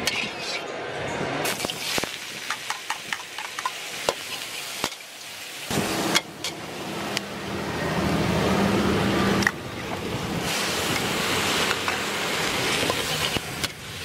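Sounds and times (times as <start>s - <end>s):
metal spatula scraping a wok: 0.0s - 0.8s, 12.7s - 14.0s
vegetables sizzling: 1.4s - 14.0s
rushing noise with low hum: 5.7s - 14.0s.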